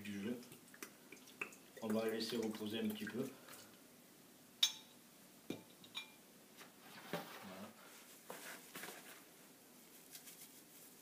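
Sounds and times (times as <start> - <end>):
faint rustling: 6.5 - 11.0.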